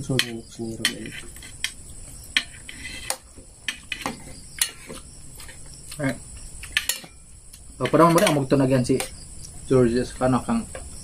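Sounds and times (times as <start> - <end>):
cutlery clinking on plates: 6.6 - 7.2, 7.8 - 9.2.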